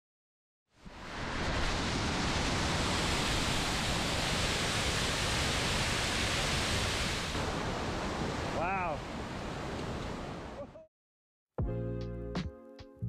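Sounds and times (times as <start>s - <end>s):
waterfall rushing: 0.8s - 10.6s.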